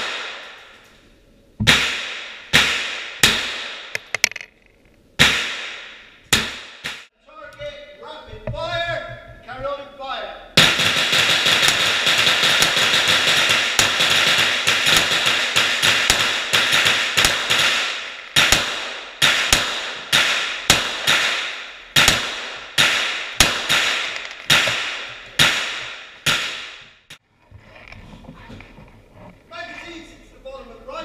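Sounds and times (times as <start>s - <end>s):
gunshots echoing indoors: 0.0s - 0.8s, 10.6s - 27.0s.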